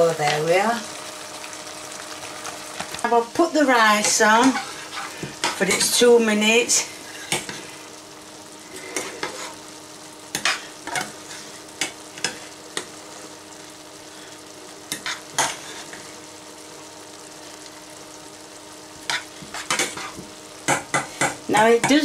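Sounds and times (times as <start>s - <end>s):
rice sizzling: 0.0s - 22.0s
wooden spoon scraping pan: 4.0s - 5.7s.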